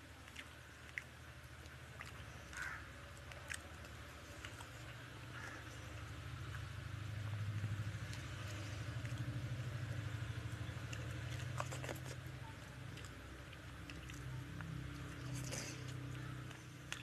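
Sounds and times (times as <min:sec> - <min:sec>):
hand squishing rice and curry: 0:00.0 - 0:17.0
steady low hum: 0:00.0 - 0:17.0.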